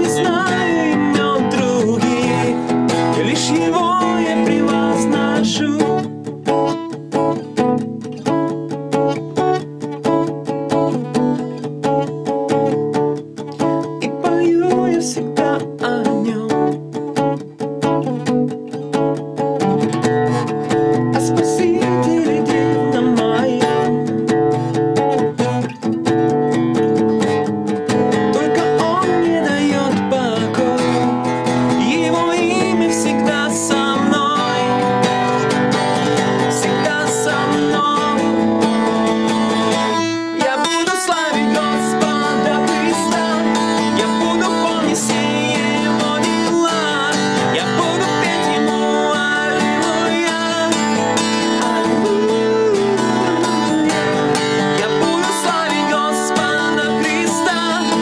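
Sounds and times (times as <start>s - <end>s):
man singing: 0.0s - 6.7s, 13.6s - 17.1s, 20.9s - 24.6s, 27.9s - 58.0s
acoustic guitar chords: 0.0s - 58.0s.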